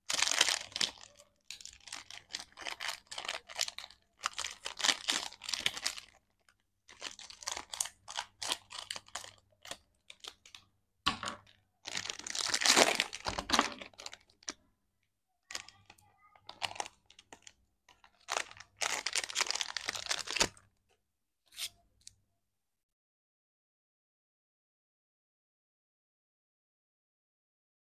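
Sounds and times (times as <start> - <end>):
candy wrappers crinkling: 0.0 - 10.7, 11.3 - 14.6, 15.4 - 20.6.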